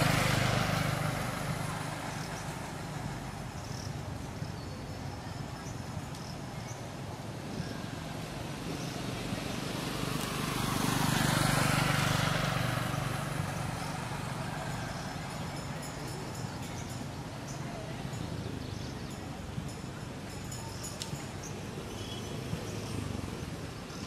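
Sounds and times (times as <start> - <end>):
vehicle passing by: 0.0 - 3.9, 8.3 - 16.0.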